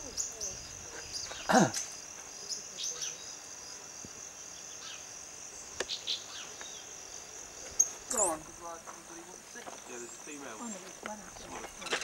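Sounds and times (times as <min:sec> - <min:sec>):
high insect trill: 0:00.0 - 0:12.0.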